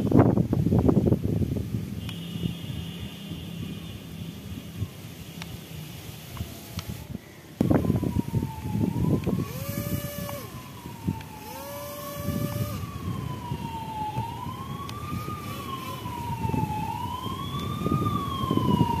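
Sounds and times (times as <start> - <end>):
small motor whining: 5.4 - 18.0
siren wailing: 5.8 - 19.0.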